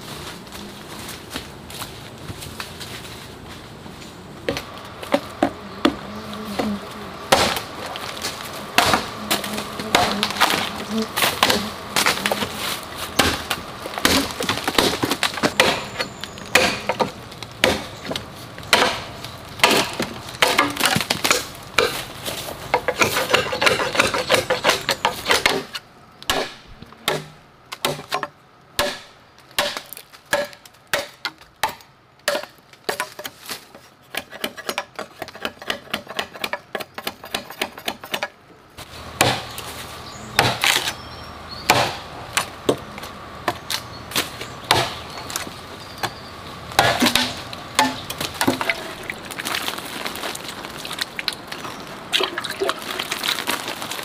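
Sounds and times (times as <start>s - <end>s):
machete chopping bamboo: 7.3s - 12.5s, 13.1s - 22.0s, 22.7s - 38.3s, 39.2s - 39.6s, 40.4s - 41.0s, 41.7s - 42.8s, 43.5s - 46.2s, 46.8s - 49.1s.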